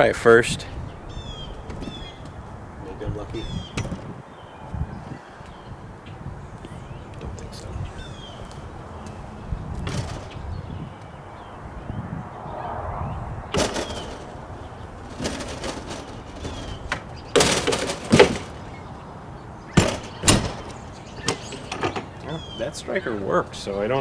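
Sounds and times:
door knocks: 19.8s - 20.7s
door latch clicks: 19.8s - 22.1s.

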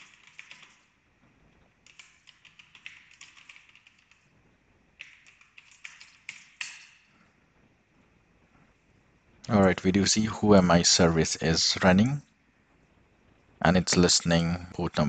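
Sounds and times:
computer keyboard typing: 0.0s - 1.0s, 1.7s - 4.3s, 4.9s - 7.0s.

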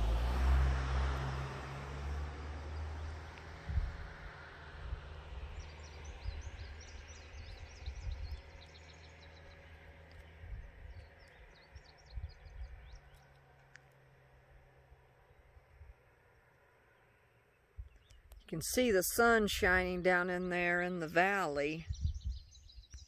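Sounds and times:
low engine hum: 0.0s - 23.0s
wind gusts on microphone: 3.5s - 8.7s, 10.3s - 13.1s, 21.7s - 23.0s
small birds chirping: 5.2s - 14.1s, 16.2s - 23.0s.

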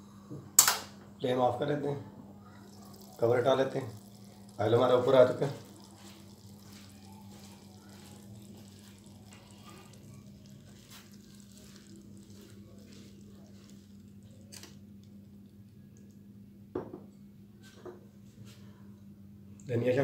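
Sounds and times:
hot oil crackling in a wok: 2.5s - 15.2s.

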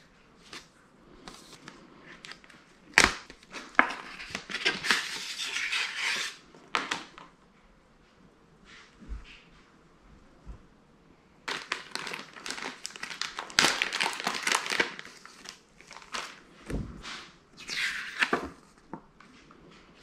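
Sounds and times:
plastic bag crinkling: 11.4s - 16.6s.

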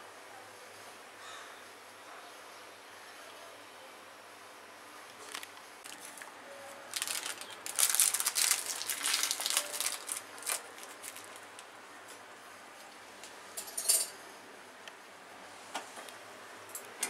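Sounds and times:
plastic packet crinkling: 5.2s - 11.7s.

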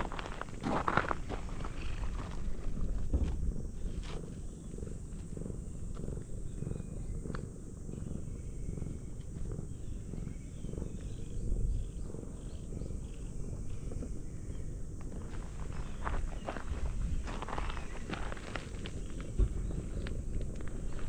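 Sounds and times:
low rumble: 0.0s - 21.0s.

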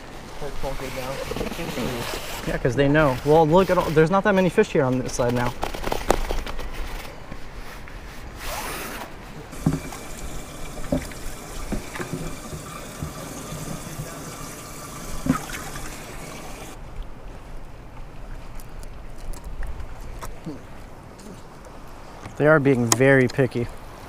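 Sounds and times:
water sloshing in a bucket: 9.5s - 16.8s.

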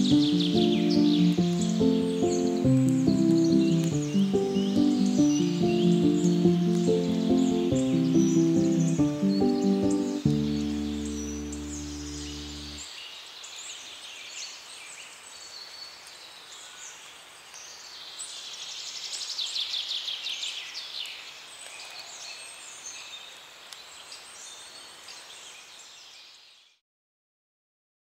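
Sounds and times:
soft outdoor hush: 0.0s - 12.8s
songbirds chirping: 0.0s - 26.8s.

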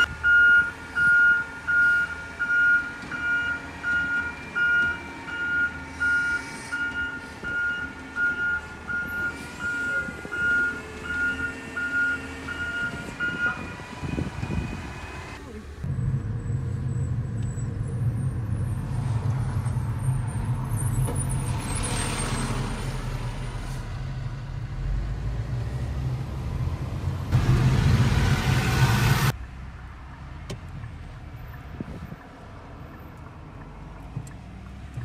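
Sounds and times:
car cabin road and engine hum: 12.4s - 35.0s.

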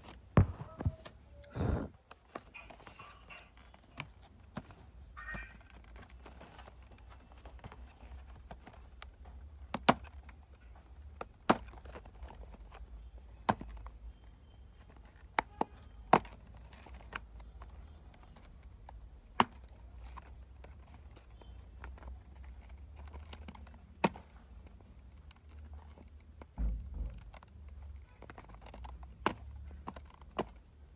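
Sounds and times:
hands handling cardboard box: 2.1s - 14.1s.

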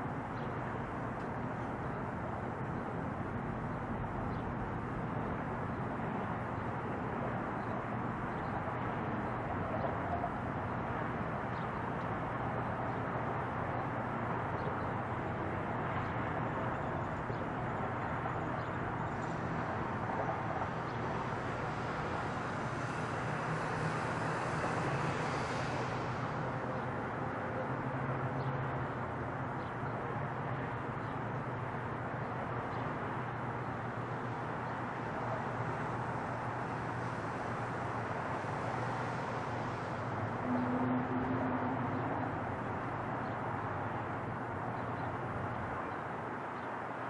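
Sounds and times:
distant jet plane rumble: 17.5s - 28.4s.

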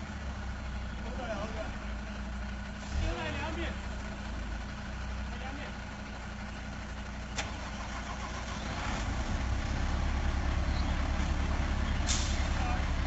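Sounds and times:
truck engine droning: 0.0s - 13.0s.

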